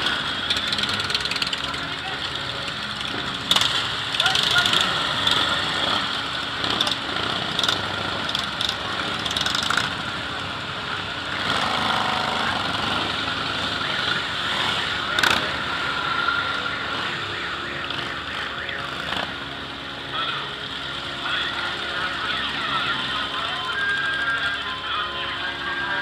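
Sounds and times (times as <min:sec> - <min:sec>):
motorcycles riding past: 0:00.0 - 0:26.0.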